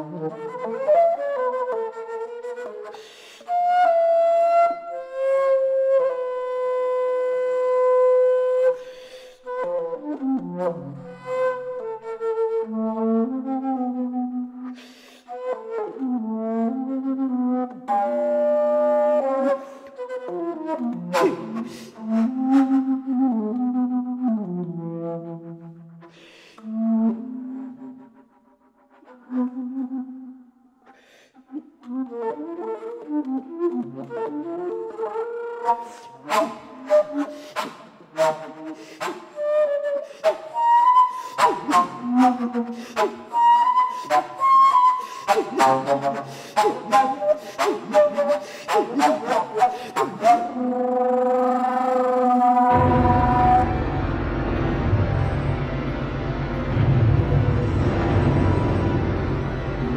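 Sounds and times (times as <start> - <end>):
flute playing held notes: 17.8 - 24.2, 31.8 - 54.3
bass flute low notes: 52.6 - 59.9.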